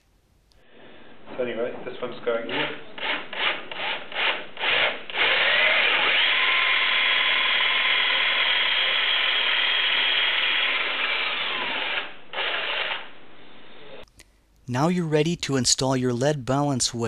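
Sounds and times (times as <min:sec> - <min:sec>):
electric drill boring into wood: 0:02.6 - 0:13.1.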